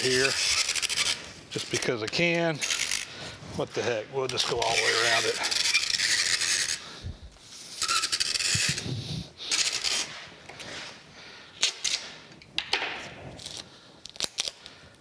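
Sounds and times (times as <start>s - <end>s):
packing tape rasping off dispenser: 0.0s - 3.2s, 4.2s - 6.8s, 7.5s - 11.0s, 11.6s - 12.2s, 13.3s - 14.8s.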